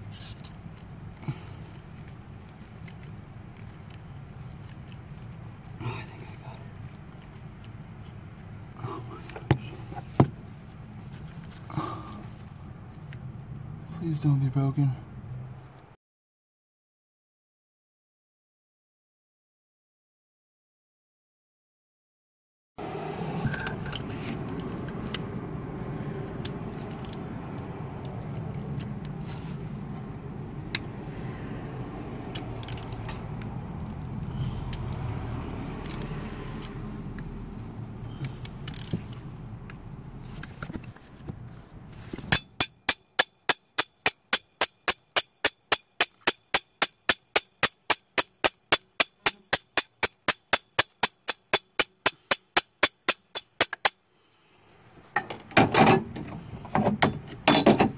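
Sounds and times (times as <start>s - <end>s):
ratchet wrench clicking: 24.0s - 24.8s, 26.3s - 28.9s, 32.3s - 33.2s, 34.6s - 35.0s, 35.8s - 36.6s, 38.1s - 39.2s, 42.3s - 54.0s
metallic clicks: 32.3s - 33.2s, 38.2s - 39.2s.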